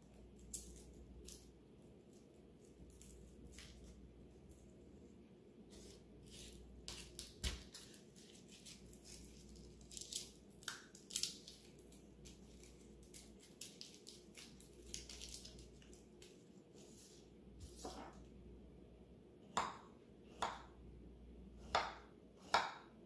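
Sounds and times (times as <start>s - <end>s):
garlic skins crackling: 5.7s - 16.6s.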